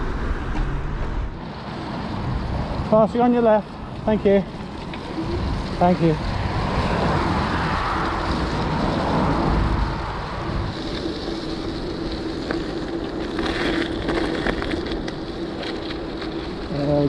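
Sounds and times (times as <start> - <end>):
wind noise on microphone: 4.7 - 15.0.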